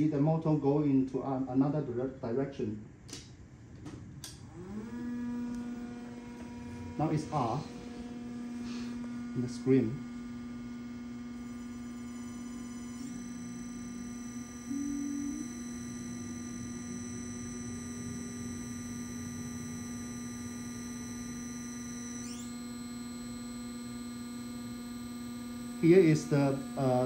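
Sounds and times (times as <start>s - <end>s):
motor whine climbing: 3.8s - 27.0s
electric motor hum: 4.2s - 27.0s.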